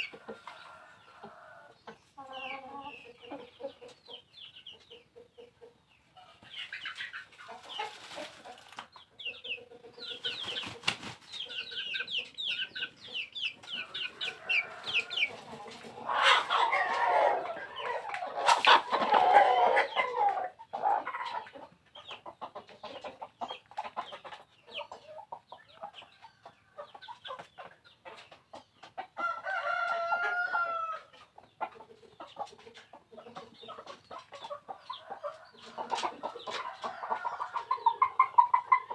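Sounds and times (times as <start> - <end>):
chickens clucking: 0.0 - 38.9
short high peeping calls: 9.1 - 15.4
rooster crowing: 14.1 - 15.4, 29.2 - 31.1.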